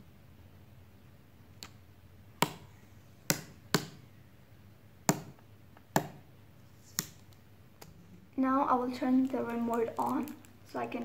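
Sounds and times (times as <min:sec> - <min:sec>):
plastic film peeling crackles: 0:08.9 - 0:11.0.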